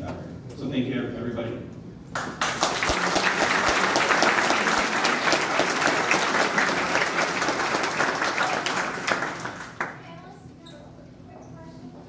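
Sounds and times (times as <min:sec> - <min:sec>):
audience applauding: 0:02.2 - 0:10.0.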